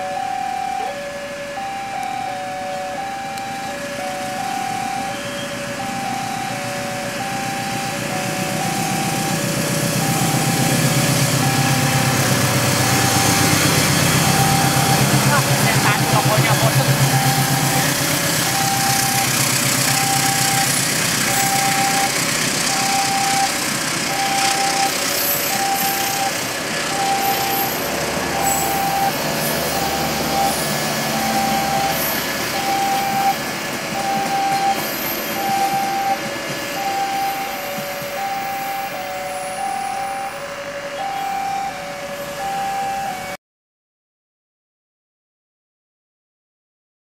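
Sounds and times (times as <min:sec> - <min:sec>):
level crossing signal beeping: 0:00.0 - 0:43.4
train passing on rails: 0:00.0 - 0:43.4
lower beep: 0:01.6 - 0:43.4.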